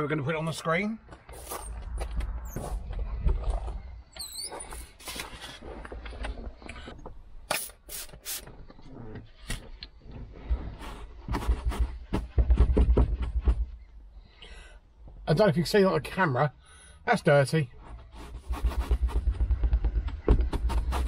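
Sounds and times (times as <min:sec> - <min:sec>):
short high squeaks: 0:04.1 - 0:05.2
spray bottle hissing: 0:07.5 - 0:08.5.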